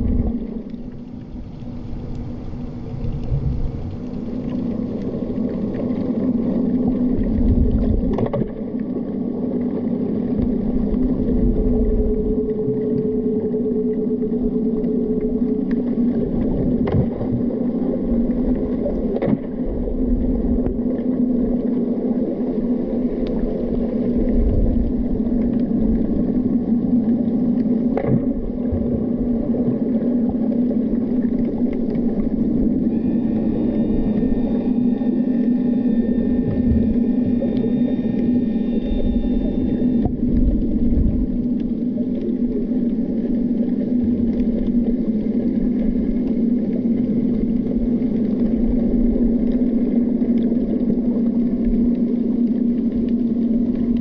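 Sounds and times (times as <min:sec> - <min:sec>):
higher hum: 0:00.0 - 0:08.2, 0:20.4 - 0:54.0
low underwater drone: 0:00.0 - 0:54.0
rumble of moving water: 0:00.0 - 0:54.0
faint clicks: 0:00.6 - 0:07.4, 0:23.2 - 0:23.5.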